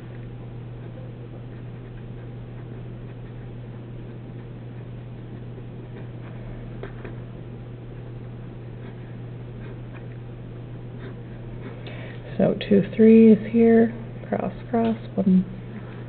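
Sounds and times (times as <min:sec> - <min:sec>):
low hum: 0:00.0 - 0:16.0
pen scratching on paper: 0:00.8 - 0:11.8.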